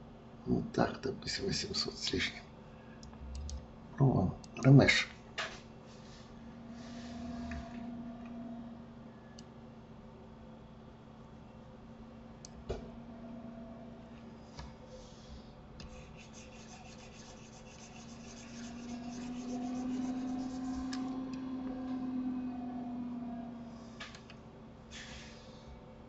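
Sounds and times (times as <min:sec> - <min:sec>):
steady low hum: 0:00.0 - 0:26.0
fast scratchy rubbing: 0:15.8 - 0:21.0.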